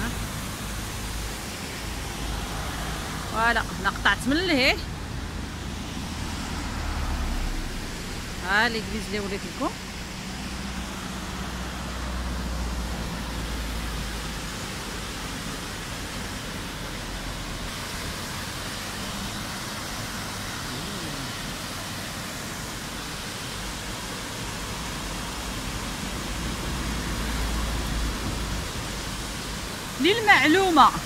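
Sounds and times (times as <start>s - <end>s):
water rushing over a weir: 0.0s - 31.0s.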